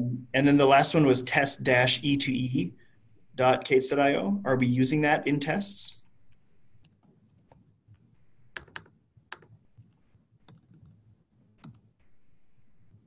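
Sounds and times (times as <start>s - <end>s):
faint computer keyboard keystrokes: 6.8s - 11.0s, 11.6s - 11.9s.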